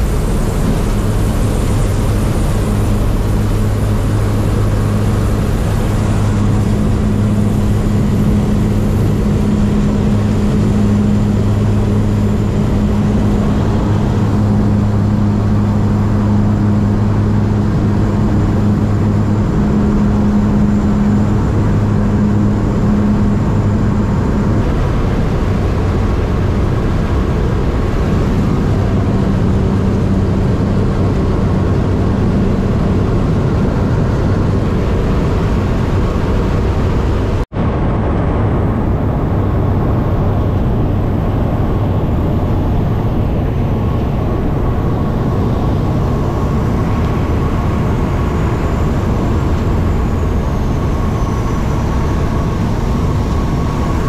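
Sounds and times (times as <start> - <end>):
floatplane engine droning: 0.0 - 54.0.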